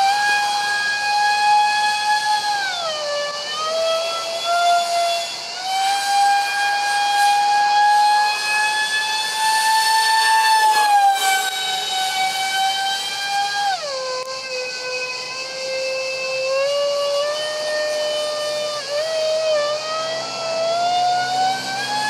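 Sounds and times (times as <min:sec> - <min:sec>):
electric ducted fans screeching: 0:00.0 - 0:22.0.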